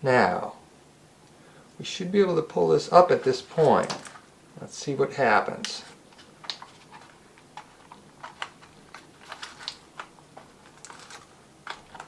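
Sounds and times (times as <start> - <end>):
plastic parts clicking: 5.6 - 12.0.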